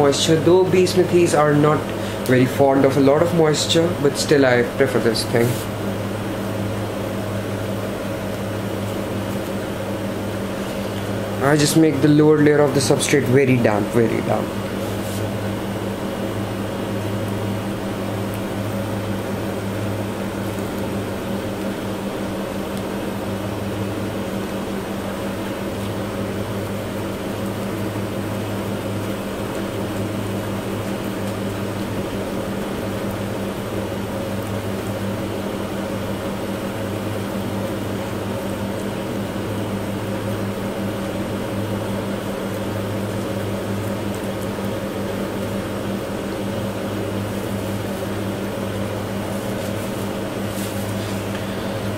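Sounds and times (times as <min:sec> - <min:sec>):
faint whirring: 0:00.0 - 0:51.9
low machine hum: 0:00.0 - 0:51.9.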